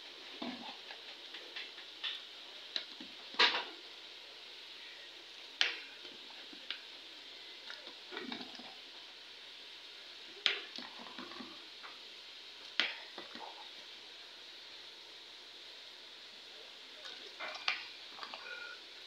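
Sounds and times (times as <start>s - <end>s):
steady hiss: 0.0s - 19.0s
wet stirring and squelching: 17.0s - 18.8s.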